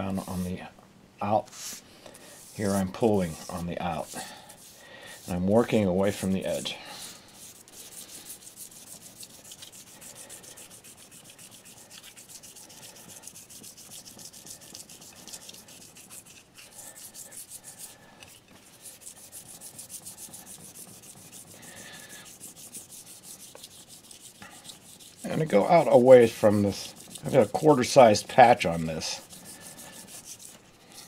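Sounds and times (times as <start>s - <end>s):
abrasive sheet rubbing on ceramic: 0.0s - 0.6s, 1.5s - 31.0s.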